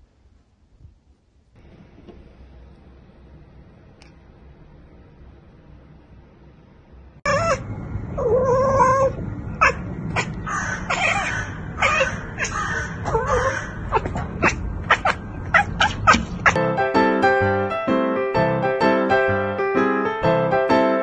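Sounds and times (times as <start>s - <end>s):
cat chirping: 7.3s - 16.6s
cat chattering clicks: 13.8s - 16.6s.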